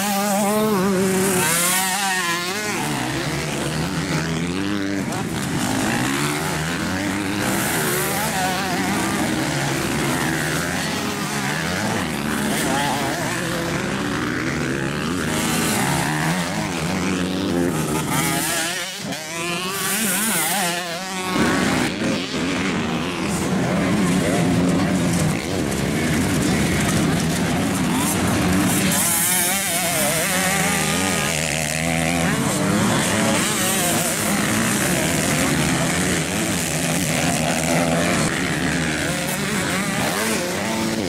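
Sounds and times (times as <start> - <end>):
motocross bikes revving: 0.0 - 41.0.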